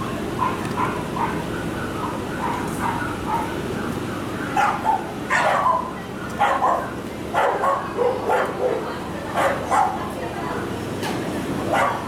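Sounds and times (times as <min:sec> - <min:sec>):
dog barking: 0:00.4 - 0:03.6, 0:04.4 - 0:10.0, 0:11.7 - 0:12.0.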